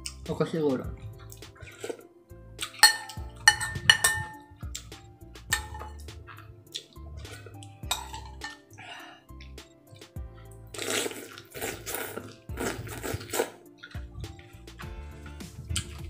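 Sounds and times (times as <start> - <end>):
soft background music: 0.0 - 16.0
cutlery clinking on ceramic bowl: 2.6 - 4.5, 5.5 - 6.1, 7.3 - 8.7.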